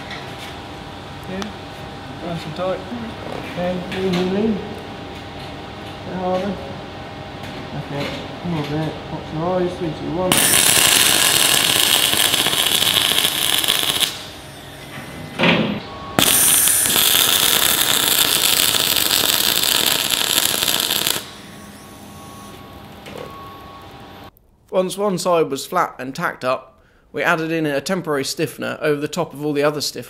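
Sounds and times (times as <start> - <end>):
welding arc crackling and hissing: 10.3 - 15.2, 16.2 - 23.0.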